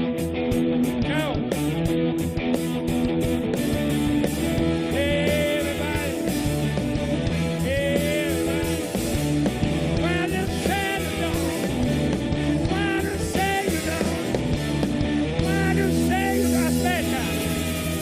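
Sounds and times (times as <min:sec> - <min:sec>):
live rock band playing: 0:00.0 - 0:18.0
person singing: 0:04.4 - 0:14.7, 0:15.4 - 0:18.0.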